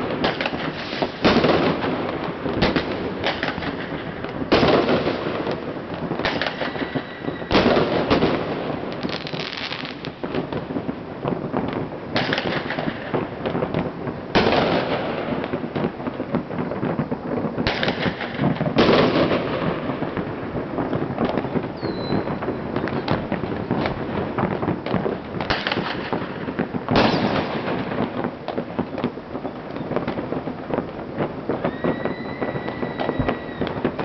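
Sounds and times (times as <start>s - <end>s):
firecrackers crackling: 0.0s - 34.0s
firework booms: 0.0s - 34.0s
high falling whistle: 6.7s - 7.5s, 21.8s - 22.3s, 31.6s - 33.8s.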